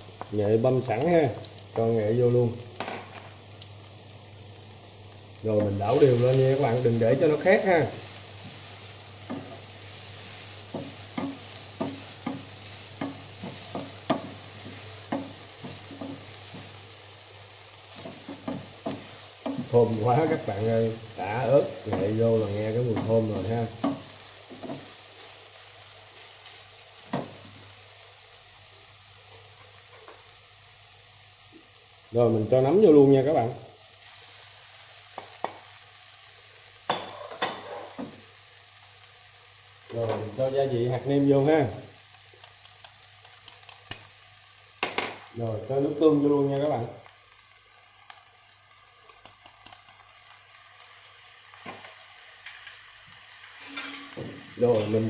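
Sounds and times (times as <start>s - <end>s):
food sizzling in oil: 0.0s - 55.0s
mushrooms crackling in frying pan: 0.0s - 55.0s
wooden spatula knocking pan: 10.7s - 16.7s, 22.9s - 24.9s.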